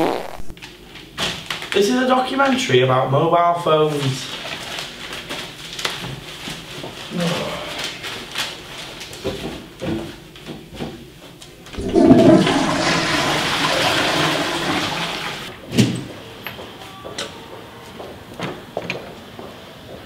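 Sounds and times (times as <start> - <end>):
toilet flushing: 11.8 - 15.6.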